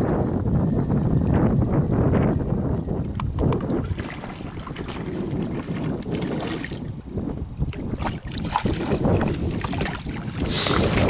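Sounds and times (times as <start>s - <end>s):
choppy water: 0.0s - 11.0s
wind rumbling on microphone: 0.0s - 11.0s
fish splashing at surface: 7.8s - 11.0s.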